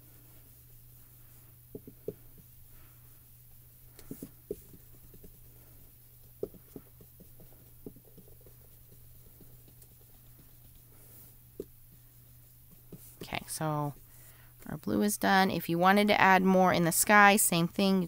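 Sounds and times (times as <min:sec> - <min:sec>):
brush dabbing on cardstock: 0:00.0 - 0:14.4.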